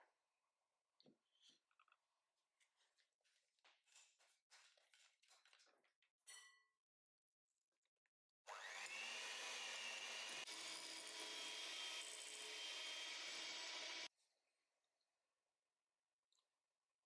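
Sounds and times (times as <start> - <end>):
electric hand mixer whining: 8.5 - 14.1.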